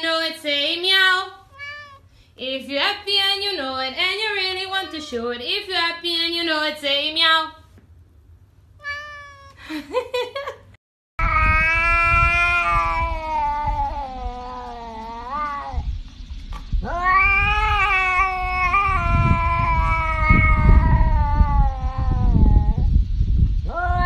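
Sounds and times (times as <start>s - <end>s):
cat yowling: 1.5s - 2.1s, 4.5s - 5.4s, 8.8s - 9.6s, 11.2s - 15.9s, 16.8s - 22.9s, 23.7s - 24.0s
low rumble: 11.2s - 24.0s.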